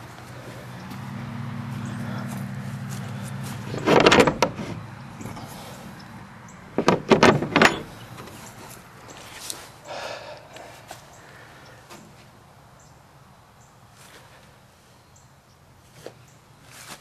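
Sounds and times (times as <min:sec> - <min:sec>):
metal latch clacking: 0:03.7 - 0:05.5, 0:06.7 - 0:08.4.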